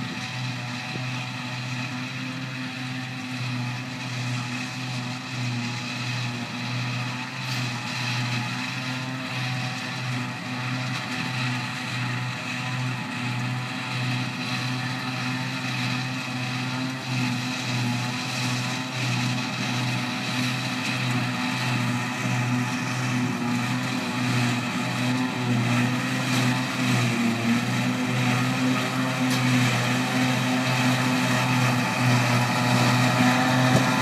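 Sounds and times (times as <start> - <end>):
farm machine engines droning: 0.0 - 34.0.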